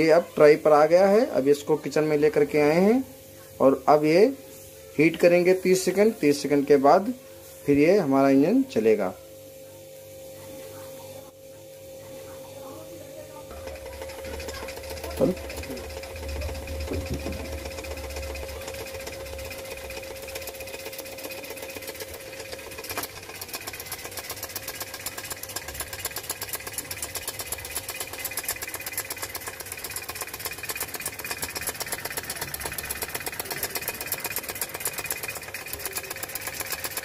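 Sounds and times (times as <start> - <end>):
small engine crank ticking rattle: 13.5 - 37.0.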